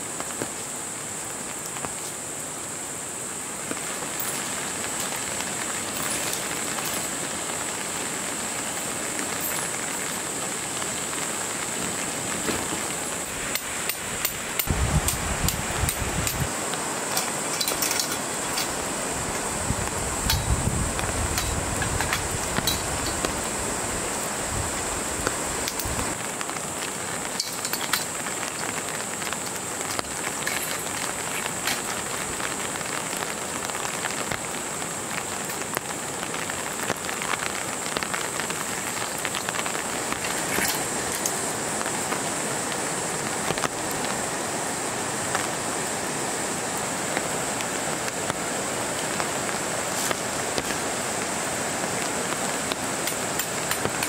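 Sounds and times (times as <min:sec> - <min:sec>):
rain on tent canvas: 0:00.0 - 0:54.0
metal tent poles clinking: 0:05.8 - 0:07.4, 0:12.5 - 0:16.5, 0:17.1 - 0:19.4, 0:20.2 - 0:20.6, 0:21.3 - 0:23.4, 0:27.3 - 0:28.7, 0:29.8 - 0:32.1, 0:40.1 - 0:41.4.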